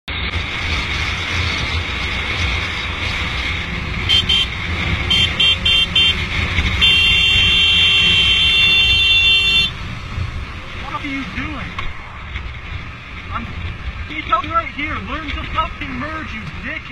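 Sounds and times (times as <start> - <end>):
motorcycle engine rumble: 0.1 - 16.9
wind and road rush: 0.1 - 16.9
high-pitched horn honking: 4.1 - 9.8.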